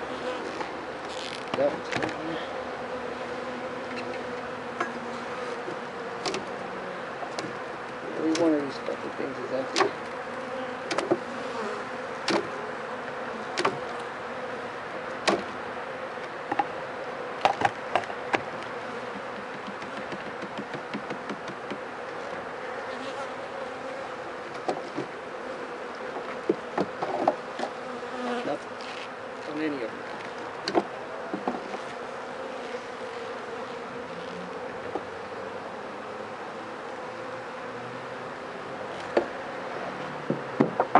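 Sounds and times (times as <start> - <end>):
bees buzzing: 0.0 - 40.9
hive tool clicking on frames: 6.2 - 6.6, 8.3 - 8.5, 9.7 - 10.1, 12.2 - 12.5, 13.6 - 14.0, 19.1 - 22.4.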